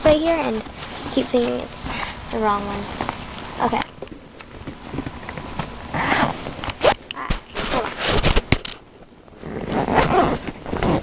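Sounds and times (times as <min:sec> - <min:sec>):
fabric rustling: 0:05.0 - 0:08.6.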